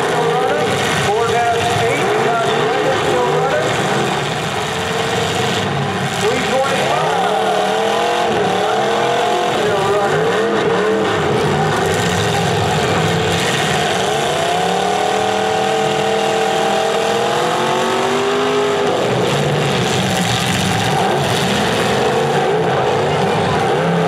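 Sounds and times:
car engines revving: 0.0 - 24.0.

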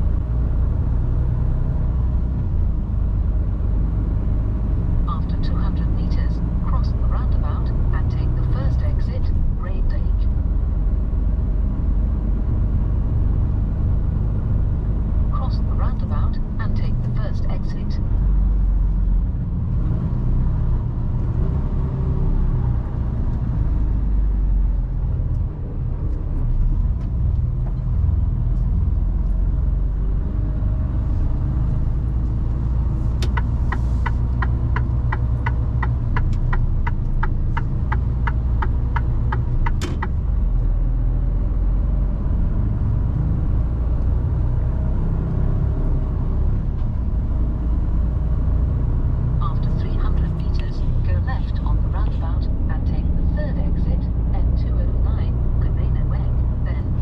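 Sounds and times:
truck diesel engine rumbling: 0.0 - 57.0
turn signal relay ticking: 33.2 - 40.2.

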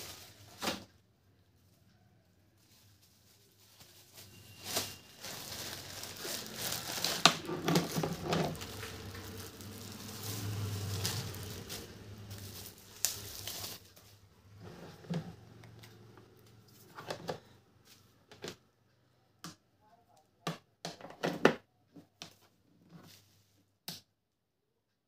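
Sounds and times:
plastic bags crinkling: 0.0 - 0.8, 2.6 - 14.7.

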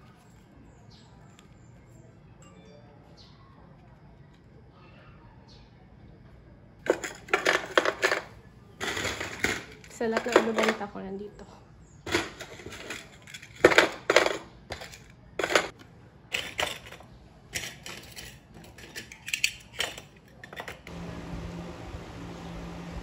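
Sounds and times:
steady low hum: 20.9 - 23.0.

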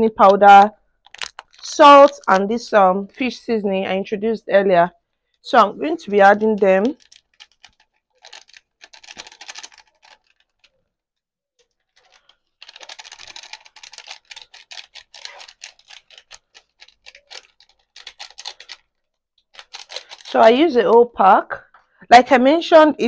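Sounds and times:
plastic sachet crinkling: 1.0 - 3.4, 5.3 - 10.8, 11.6 - 20.9.

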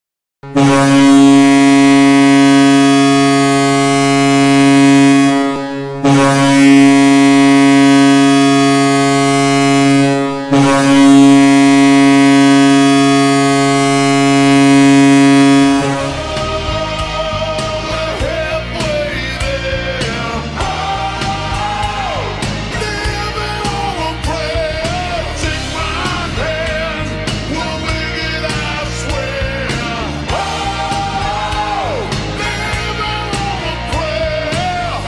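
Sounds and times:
hockey goal horn blasts: 0.4 - 19.4.

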